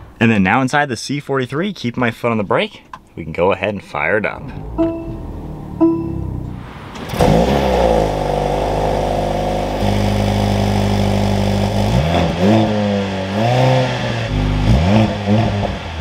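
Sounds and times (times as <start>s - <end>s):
car engine starting and idling: 2.9s - 16.0s
engine revving: 4.4s - 16.0s.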